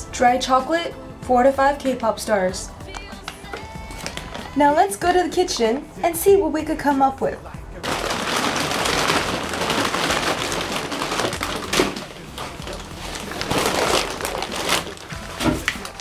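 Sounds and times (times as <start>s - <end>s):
plastic snack packet crinkling: 3.9s - 4.6s, 7.8s - 16.0s.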